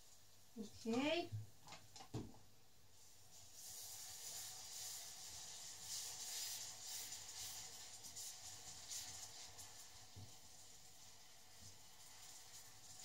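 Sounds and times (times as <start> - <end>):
caramel hissing and bubbling: 2.8 - 13.0
wooden spoon stirring: 3.0 - 13.0.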